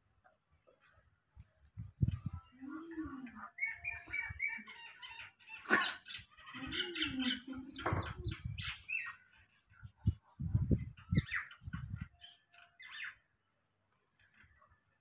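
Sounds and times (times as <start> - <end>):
small birds chirping: 1.8 - 13.5.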